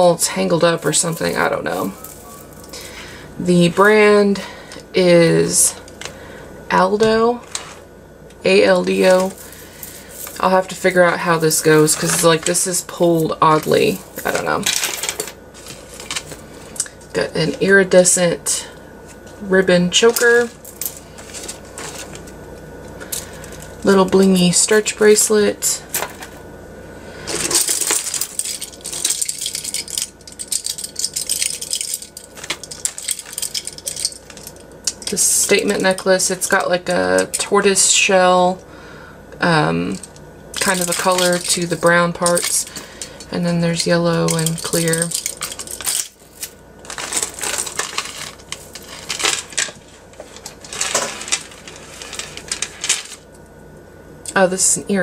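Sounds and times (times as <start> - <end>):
jewelry clinking and jangling: 0.8 - 3.0, 9.0 - 16.4, 27.3 - 36.0, 39.9 - 42.9, 43.8 - 53.2
plastic bag crinkling: 0.8 - 3.9, 27.3 - 35.9, 43.7 - 53.3.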